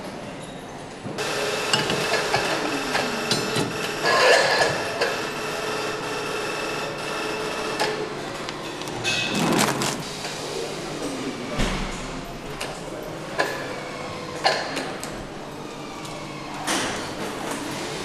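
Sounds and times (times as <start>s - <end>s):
machinery hum: 1.1s - 18.0s
plastic film rustling: 8.8s - 10.1s.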